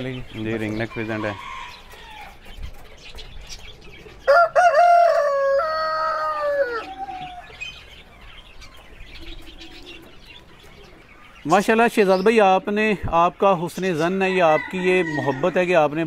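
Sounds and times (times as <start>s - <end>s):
small birds chirping: 0.0s - 16.0s
rooster crowing: 4.3s - 7.6s, 14.3s - 15.6s.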